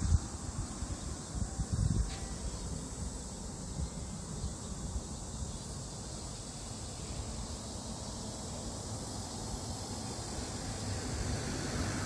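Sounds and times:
wind buffeting microphone: 0:00.0 - 0:05.5
steady high hiss: 0:00.0 - 0:12.0.

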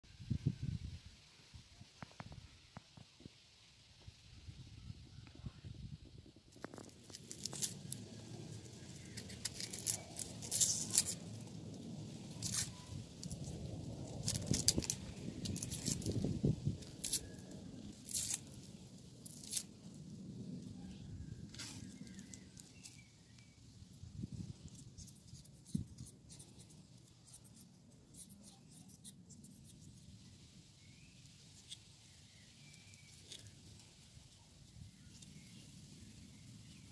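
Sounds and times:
onion skin crackling and tearing: 0:06.5 - 0:20.0, 0:21.5 - 0:23.4
knife scraping tomato skin: 0:08.9 - 0:11.3, 0:14.2 - 0:19.7, 0:24.6 - 0:30.0.

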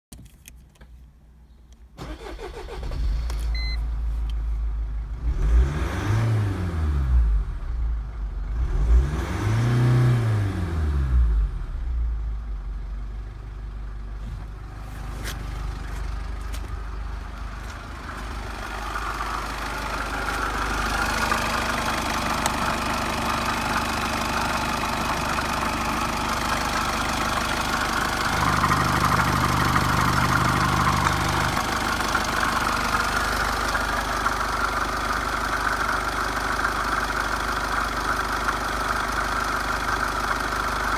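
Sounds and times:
diesel engine starting and revving: 0:02.0 - 0:40.9
diesel engine idling: 0:11.4 - 0:40.9.

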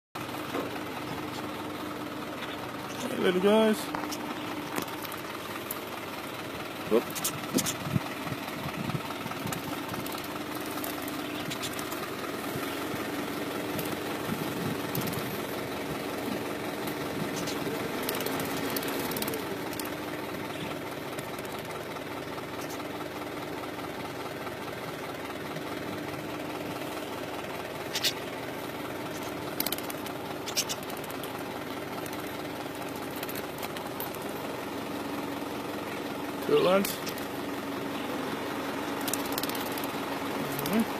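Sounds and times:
diesel truck engine idling: 0:00.2 - 0:40.9.

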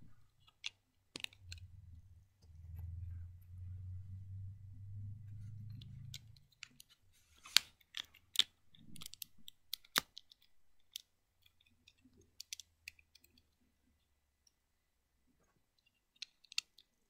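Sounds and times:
plastic bricks clicking together: 0:00.4 - 0:01.6, 0:07.5 - 0:13.4, 0:15.8 - 0:17.0.

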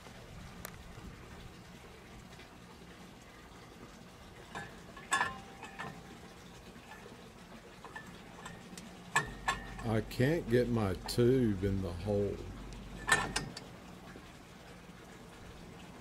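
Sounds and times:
faint steady hiss: 0:00.0 - 0:16.0
metal tubes knocking against brackets: 0:04.5 - 0:07.2, 0:07.8 - 0:13.8.

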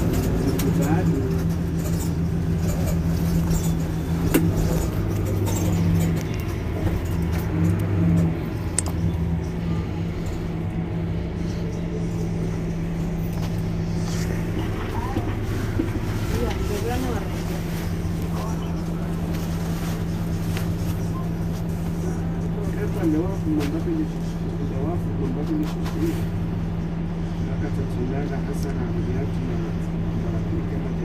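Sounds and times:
bus engine idling: 0:00.0 - 0:31.0.

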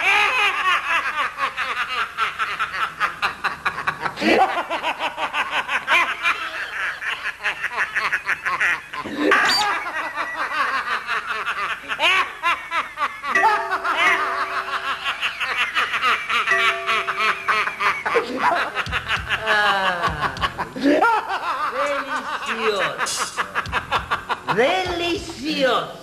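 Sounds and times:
people cackling with laughter: 0:00.0 - 0:24.6
steady held tone: 0:13.4 - 0:18.6.

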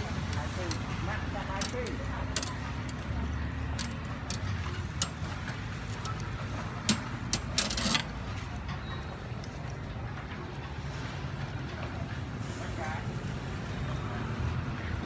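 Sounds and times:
tongs scraping grate: 0:00.0 - 0:08.5
tongs clicking on grill grate: 0:00.1 - 0:08.3.

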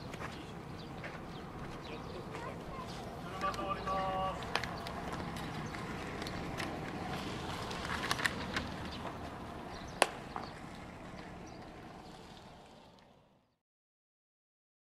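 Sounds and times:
baseballs smacking into gloves: 0:09.9 - 0:10.5.

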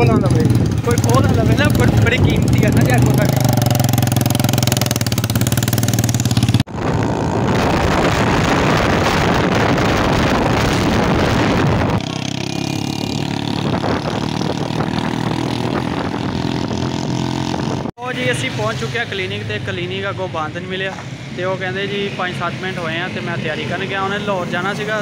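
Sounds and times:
wind noise on microphone: 0:00.0 - 0:17.9.

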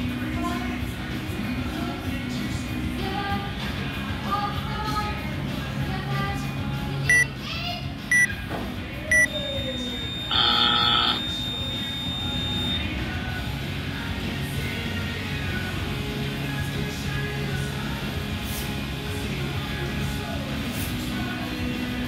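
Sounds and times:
background music: 0:00.0 - 0:22.0
timer short beeps: 0:08.1 - 0:08.3, 0:09.1 - 0:12.8
end-of-time buzzer: 0:09.1 - 0:12.8.

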